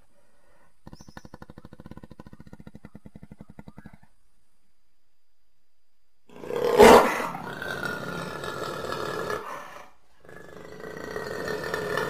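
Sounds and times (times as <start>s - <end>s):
jaguar roar: 6.3s - 12.0s.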